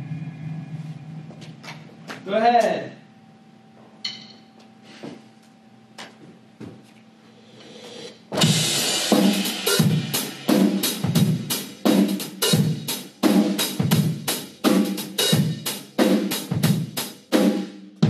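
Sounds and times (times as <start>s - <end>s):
drum kit playing a steady beat: 7.6s - 18.0s.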